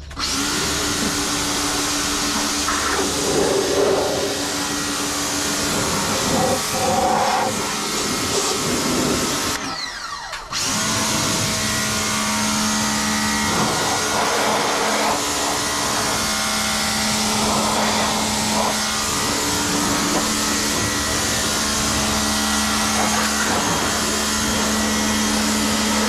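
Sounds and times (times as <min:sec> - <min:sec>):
pressure washer motor whine: 0:00.0 - 0:26.0
water jet spraying: 0:00.6 - 0:09.6, 0:12.8 - 0:26.0.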